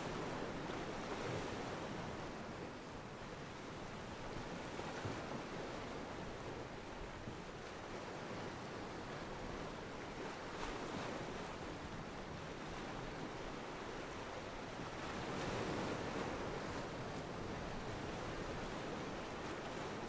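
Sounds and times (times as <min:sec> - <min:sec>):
waves breaking: 0:04.5 - 0:20.0.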